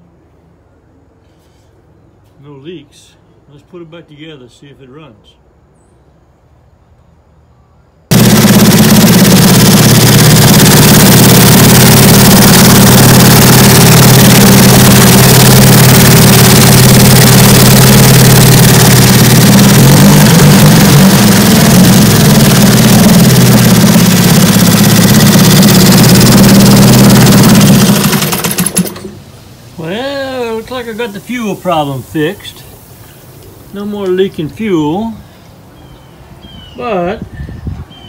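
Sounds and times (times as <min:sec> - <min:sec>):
outboard motor sputtering: 0:08.1 - 0:29.2.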